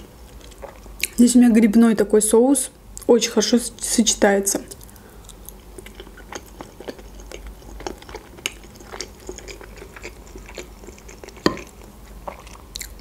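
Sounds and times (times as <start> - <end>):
wet chewing: 4.7 - 13.0.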